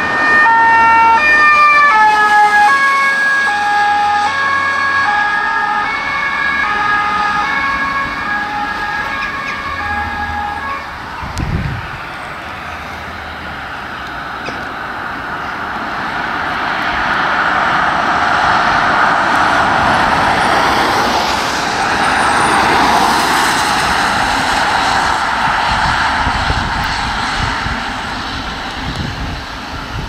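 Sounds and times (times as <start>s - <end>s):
vehicle noise: 0.0s - 30.0s.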